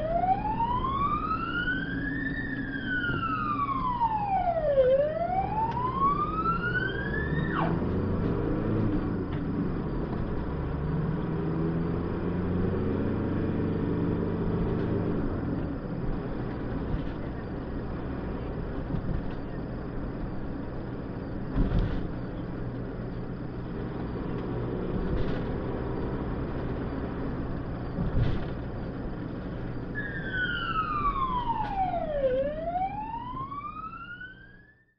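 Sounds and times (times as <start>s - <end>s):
ambulance siren: 0.0s - 8.2s, 29.8s - 34.9s
vehicle engine and road noise: 0.0s - 34.9s.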